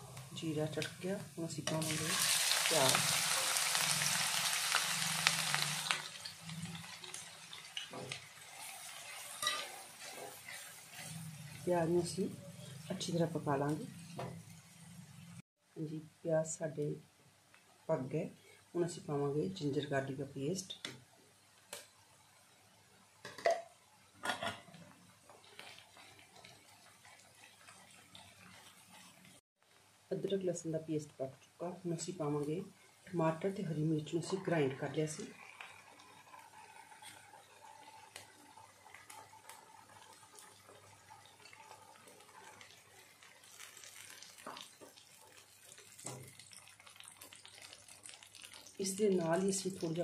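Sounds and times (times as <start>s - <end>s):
onions sizzling in hot oil: 0.0s - 15.4s, 25.2s - 29.4s, 32.0s - 50.0s
spatula scraping a pan: 5.4s - 11.7s, 25.3s - 29.4s.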